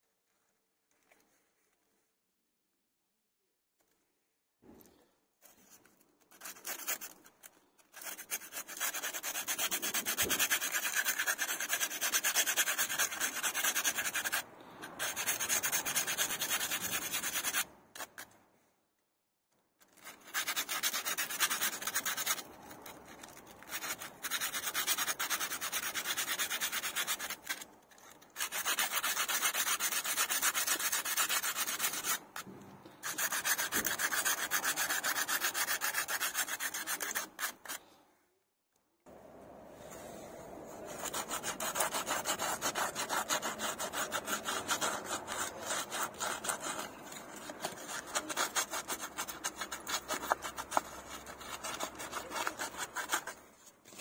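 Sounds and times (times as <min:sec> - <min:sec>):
hand tool rasping on metal clamps: 0:40.9 - 0:54.0.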